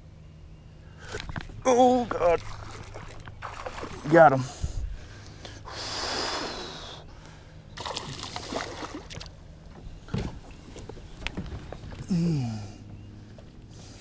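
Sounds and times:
fish thrashing and splashing: 1.0s - 4.4s, 7.8s - 9.4s.

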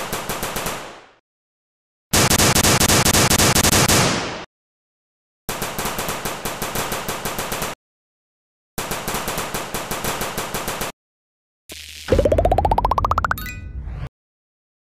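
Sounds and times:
machine-gun bursts: 2.1s - 4.2s, 8.8s - 10.9s.

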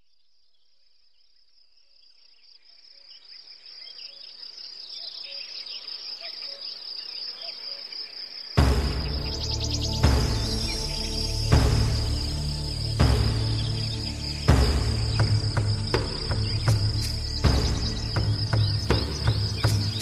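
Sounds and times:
faint bird-like chirps: 0.0s - 8.3s
high-pitched insect chirping: 1.2s - 20.0s
loud music with heavy bass: 8.6s - 20.0s.

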